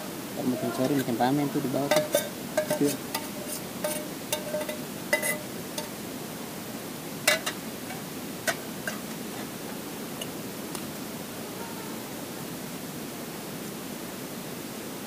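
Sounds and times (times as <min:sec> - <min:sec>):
steady hiss: 0:00.0 - 0:15.0
metal cookware clinking: 0:01.8 - 0:05.9, 0:07.2 - 0:09.1.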